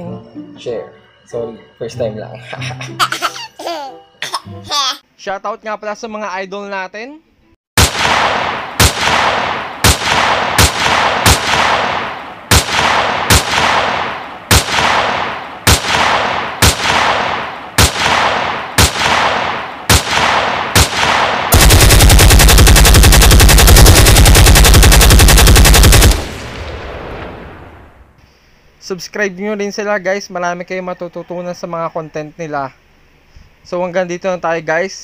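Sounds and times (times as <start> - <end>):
machine-gun burst: 7.8 - 27.3
single gunshots with echo: 7.8 - 27.8.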